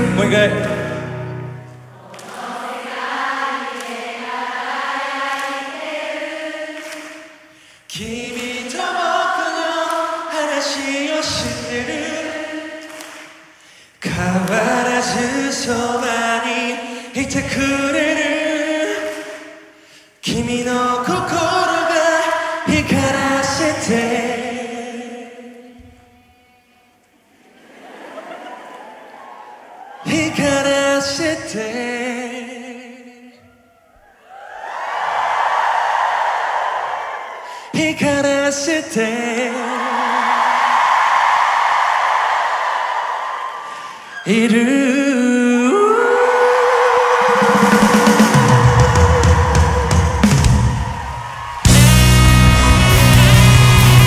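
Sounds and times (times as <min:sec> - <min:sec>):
crowd singing without accompaniment: 0:00.0 - 0:26.2, 0:44.3 - 0:54.0.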